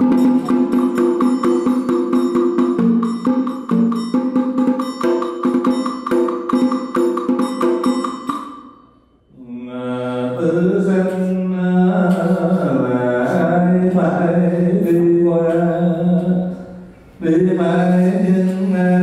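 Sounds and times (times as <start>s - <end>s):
ringing percussion strikes: 0.0s - 9.3s.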